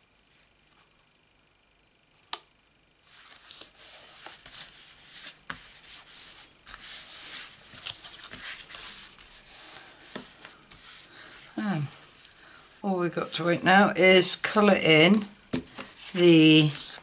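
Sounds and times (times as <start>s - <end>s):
palms rubbing over cardstock: 3.0s - 14.3s, 15.1s - 17.0s.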